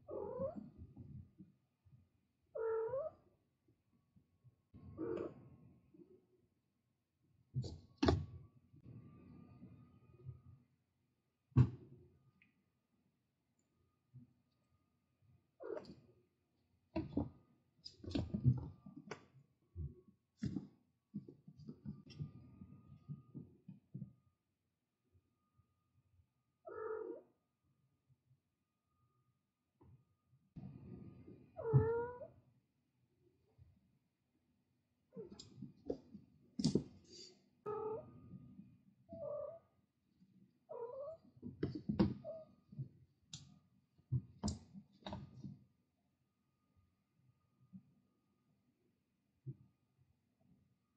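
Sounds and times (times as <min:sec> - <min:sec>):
cat meowing: 0:02.6 - 0:03.1, 0:31.6 - 0:32.3.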